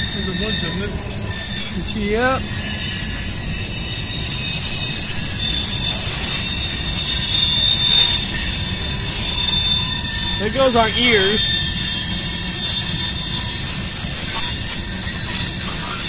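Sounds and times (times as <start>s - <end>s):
low rumble of wheels on track: 0.0s - 16.0s
train wheels squealing on rail: 0.0s - 16.0s.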